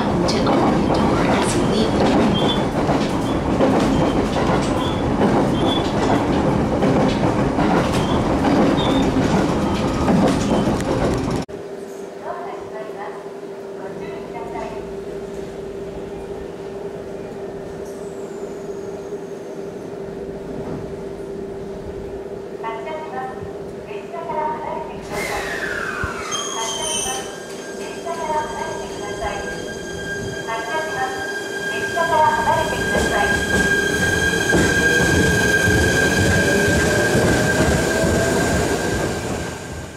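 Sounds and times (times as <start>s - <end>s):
wheel-on-rail noise: 0.0s - 11.5s
electric train equipment humming: 0.0s - 39.9s.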